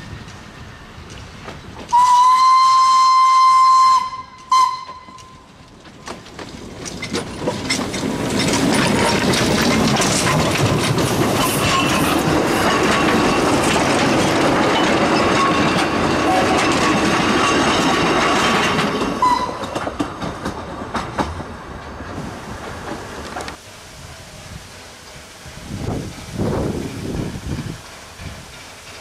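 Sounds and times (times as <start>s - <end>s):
train wheels clattering over rail joints: 0.0s - 2.2s, 4.3s - 23.6s, 24.9s - 29.0s
steam locomotives working: 0.0s - 29.0s
steam locomotive whistle: 1.9s - 5.5s, 19.2s - 19.7s.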